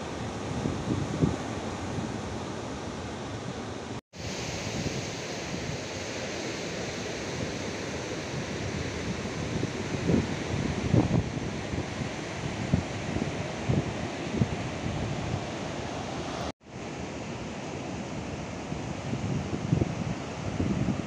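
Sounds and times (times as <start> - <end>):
wind buffeting microphone: 0.0 - 3.2, 7.0 - 16.5, 18.8 - 21.0.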